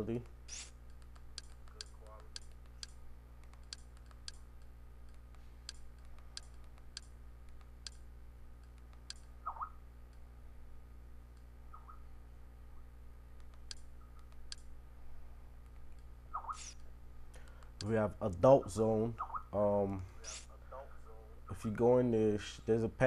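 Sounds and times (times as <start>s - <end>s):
faint low hum: 0.0s - 23.0s
short squeaks: 0.5s - 0.8s.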